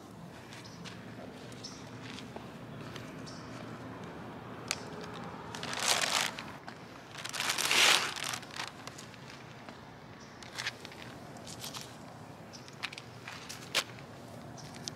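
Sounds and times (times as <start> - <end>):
plastic bag rustling: 5.0 - 9.5.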